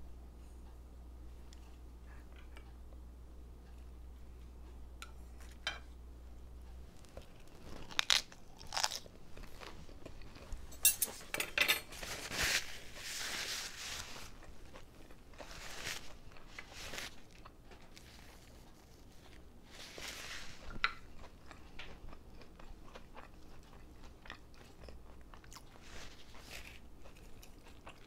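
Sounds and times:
crunchy chewing of lettuce: 0:06.9 - 0:10.8, 0:11.9 - 0:28.0.

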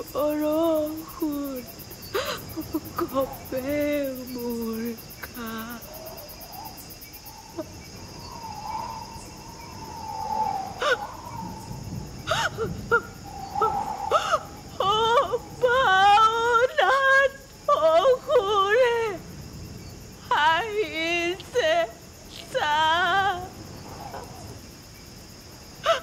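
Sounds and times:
person crying and sobbing: 0:00.0 - 0:06.0, 0:12.3 - 0:19.2
crickets chirring: 0:00.0 - 0:26.0.

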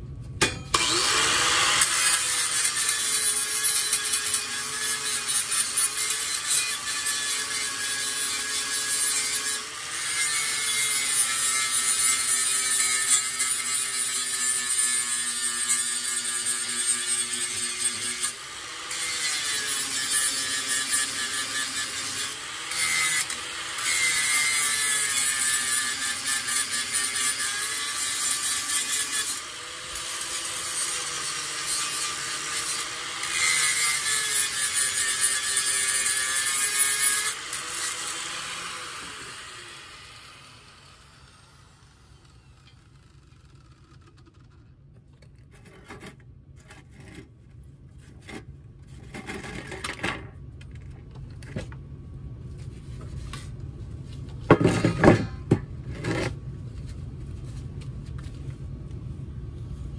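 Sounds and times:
angle grinder grinding steel: 0:00.4 - 0:44.7.

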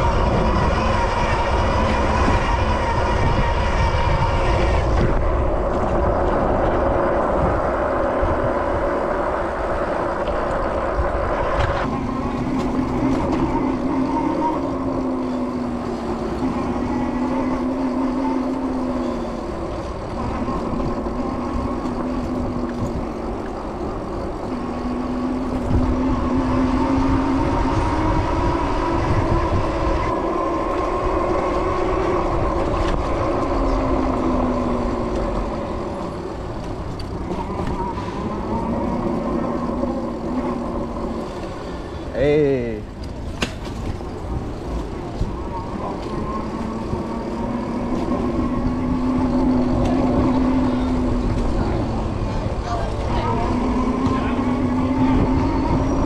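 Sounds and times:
electric motor hum: 0:00.0 - 0:43.1
city street traffic: 0:00.0 - 0:56.0.

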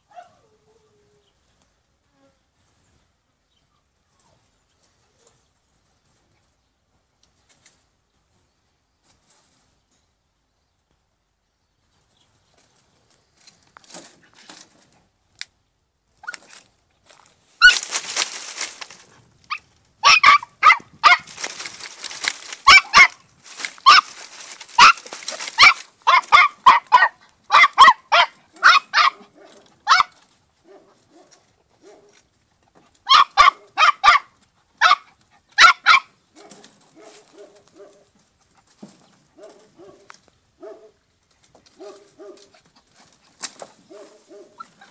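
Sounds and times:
dry branches rustling: 0:12.0 - 0:44.9
puppy yapping: 0:17.6 - 0:17.9, 0:19.5 - 0:21.4, 0:22.6 - 0:23.2, 0:23.8 - 0:24.2, 0:24.8 - 0:32.1, 0:33.1 - 0:38.0.

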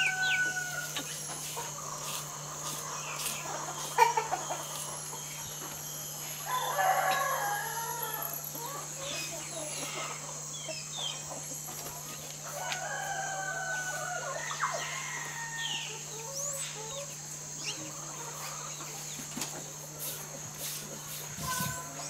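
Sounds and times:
rooster crowing: 0:00.0 - 0:01.1, 0:06.4 - 0:09.0, 0:12.4 - 0:16.1
chicken calls: 0:00.0 - 0:22.0.

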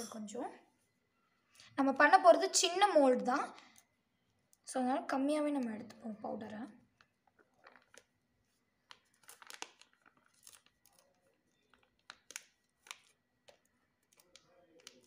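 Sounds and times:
plastic bag crinkling: 0:06.8 - 0:15.0.

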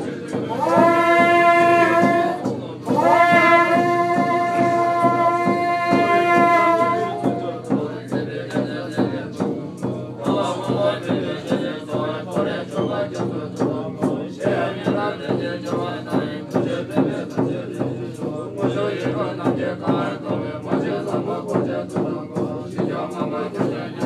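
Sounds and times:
chanting voices: 0:00.0 - 0:24.0
percussion strikes: 0:00.0 - 0:24.0
wind instrument long tone: 0:00.4 - 0:07.6.

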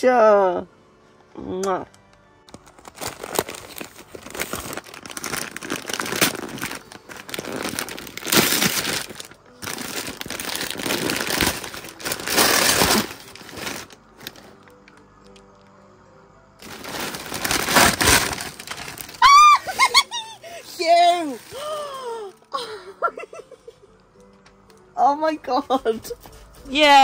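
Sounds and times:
wrapping paper crumpling and tearing: 0:02.5 - 0:15.0, 0:16.6 - 0:22.6.

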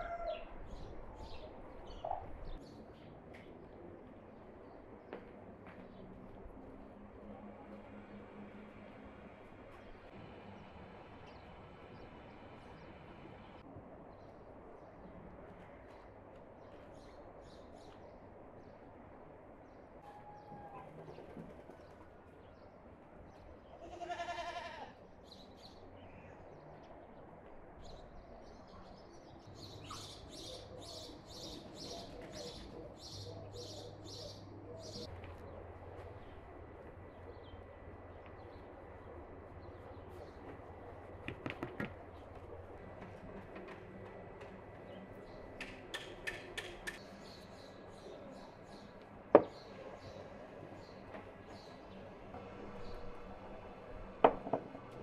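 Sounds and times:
animal bleat: 0:23.7 - 0:25.0
small birds chirping: 0:27.8 - 0:41.1.

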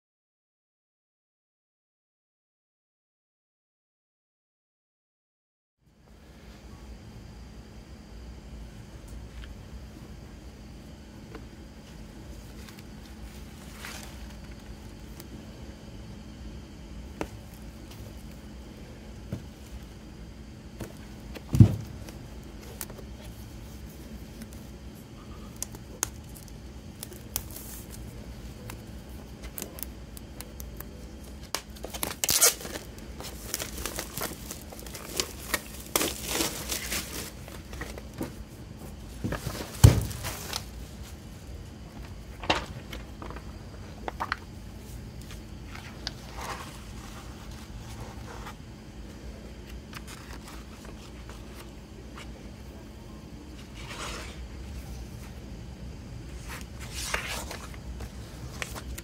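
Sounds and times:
dull knocks of box: 0:21.4 - 0:22.0, 0:39.3 - 0:40.4
paper rustling: 0:25.5 - 0:38.4, 0:45.2 - 0:48.6, 0:49.6 - 0:52.3, 0:53.6 - 0:54.4, 0:56.3 - 0:59.0
plastic film crinkling and tearing: 0:25.6 - 0:38.0.

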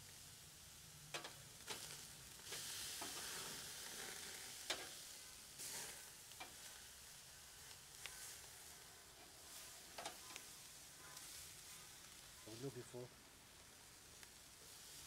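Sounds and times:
steaks sizzling over charcoal: 0:00.0 - 0:15.0.

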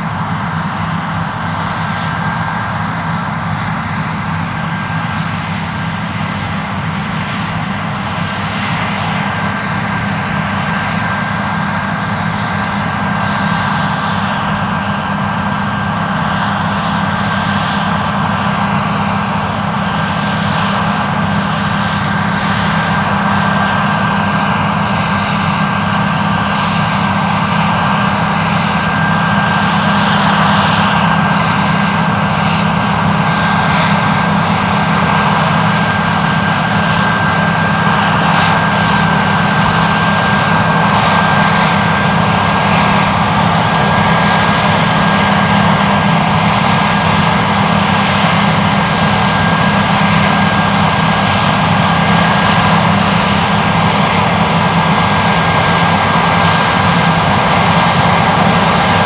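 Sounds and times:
combine harvester drone with whine: 0:00.0 - 0:59.0.

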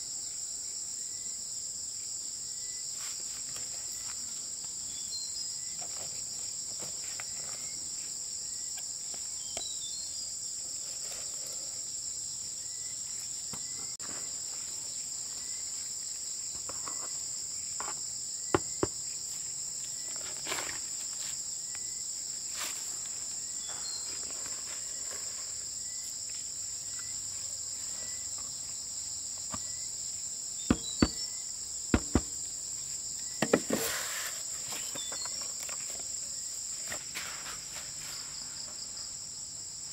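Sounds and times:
sharp knocks: 0:30.7 - 0:31.2, 0:31.9 - 0:32.4.

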